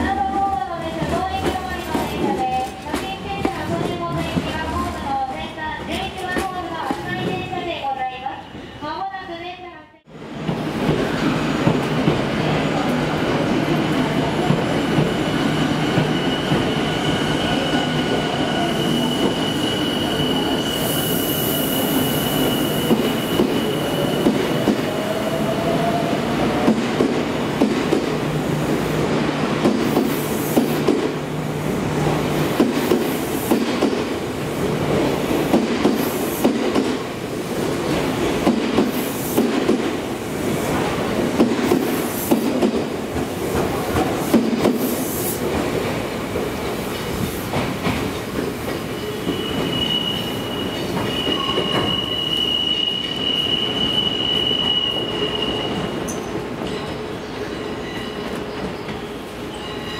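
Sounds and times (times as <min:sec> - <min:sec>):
high wheel squeal: 0:15.1 - 0:24.4, 0:49.0 - 0:56.3.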